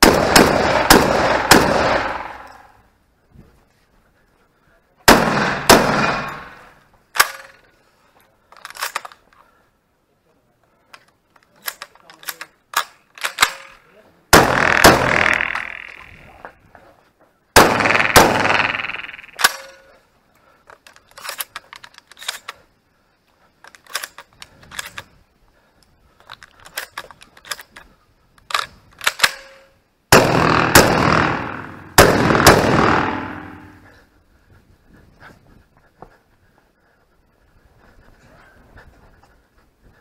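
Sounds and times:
shotgun blasts with echo: 0.0s - 2.7s, 5.1s - 7.5s, 14.3s - 16.2s, 17.6s - 19.8s, 30.1s - 34.0s.

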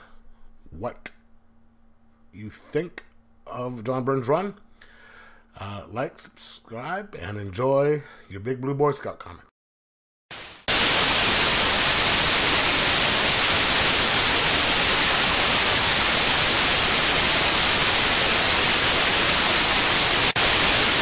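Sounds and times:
white-noise static hiss: 10.3s - 21.0s.

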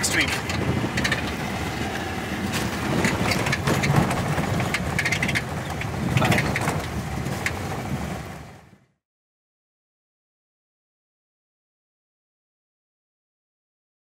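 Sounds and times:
car body rattling and knocking: 0.0s - 1.7s, 2.4s - 8.6s
low road rumble in car: 0.0s - 9.0s.

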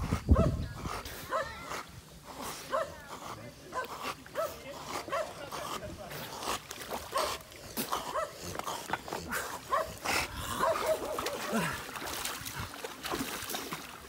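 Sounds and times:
water splashing: 3.8s - 14.0s.

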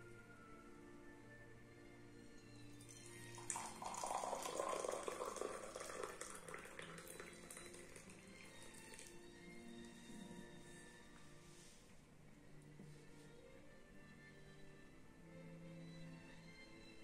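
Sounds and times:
soft background music: 0.0s - 17.0s
liquid pouring into a mug: 2.8s - 9.3s.

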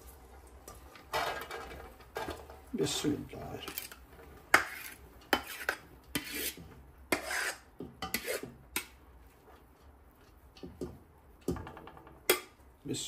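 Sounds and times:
spoon scraping a cooking pot: 3.6s - 9.0s.

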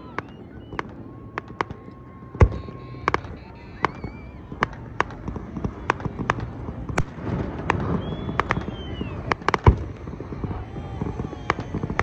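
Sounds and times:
falling whistle: 0.0s - 4.6s, 7.8s - 9.3s
fireworks banging: 0.0s - 12.0s.

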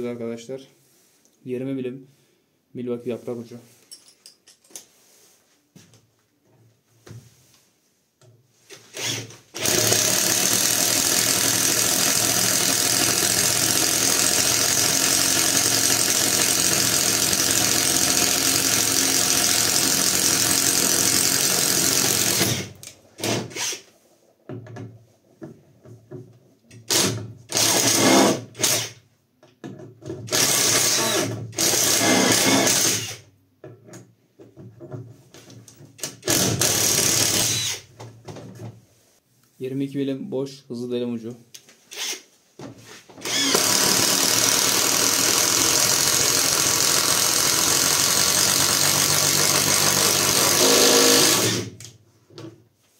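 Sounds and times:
impact driver boring into wood: 8.7s - 23.9s, 26.8s - 29.0s, 30.3s - 33.2s, 36.0s - 37.9s, 41.9s - 42.2s, 43.2s - 51.8s.

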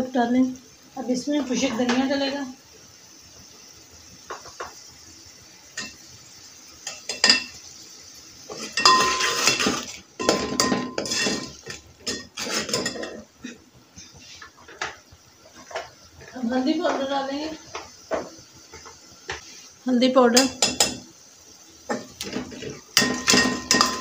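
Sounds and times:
ladle scraping metal pot: 8.5s - 13.3s
metallic ring of pot: 8.6s - 13.2s, 23.0s - 24.0s
ladle tapping pot: 23.0s - 24.0s.

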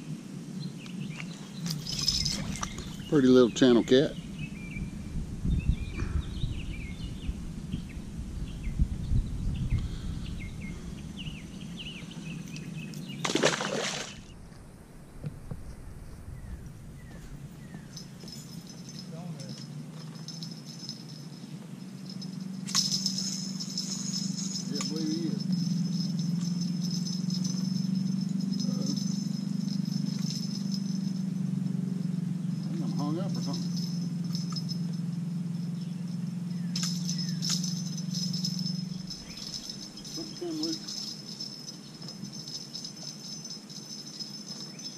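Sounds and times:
low microphone rumble: 0.0s - 13.2s, 14.2s - 19.8s
songbirds chirping: 0.0s - 44.9s
steady low hum: 0.0s - 44.9s.

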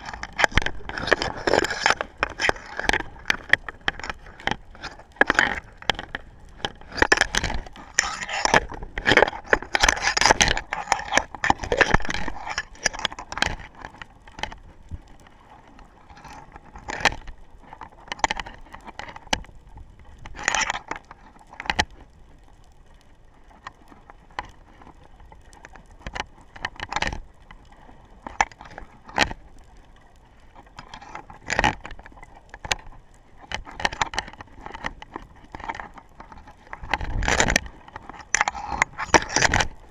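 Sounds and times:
underwater clicks and crackles: 0.0s - 39.9s.

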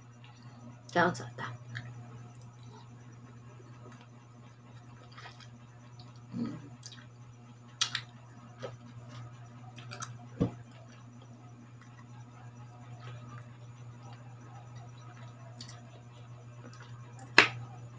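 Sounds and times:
steady low hum: 0.0s - 17.9s
person chewing with wet mouth sounds: 4.7s - 7.1s, 7.8s - 17.6s.

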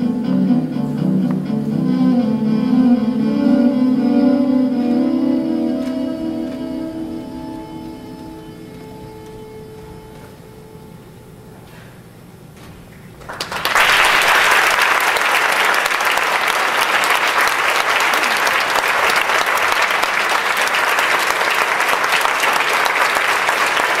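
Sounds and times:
audience applauding: 13.2s - 24.0s.

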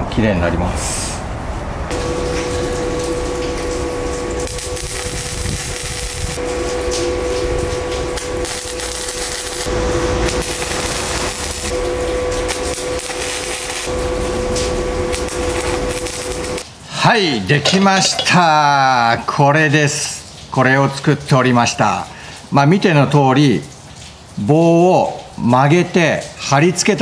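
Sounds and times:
steady welder hum: 1.9s - 16.7s, 17.4s - 18.5s
welder arc crackling and sizzling: 1.9s - 19.0s.

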